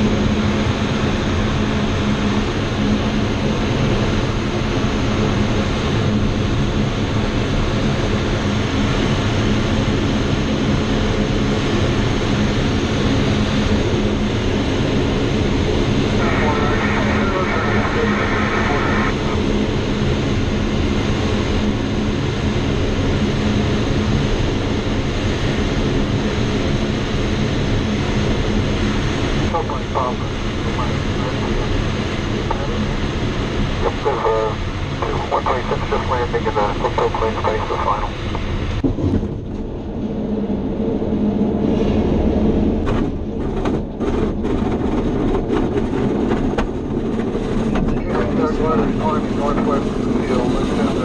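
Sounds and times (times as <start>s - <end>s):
low hum: 0.0s - 51.0s
rushing airflow: 30.2s - 51.0s
wheel rumbling on runway: 38.2s - 51.0s.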